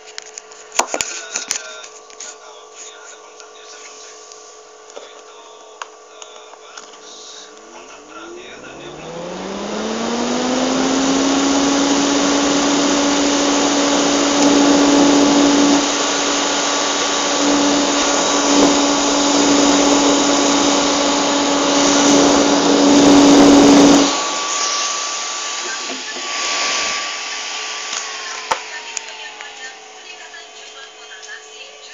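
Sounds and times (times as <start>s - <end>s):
electric fan motor hum: 0.0s - 31.9s
rush of air from fan: 13.9s - 28.9s.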